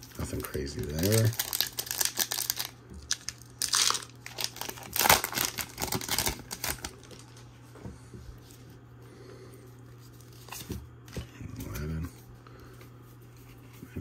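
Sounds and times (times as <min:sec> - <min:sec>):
foil wrapper crinkling: 0:00.0 - 0:07.5.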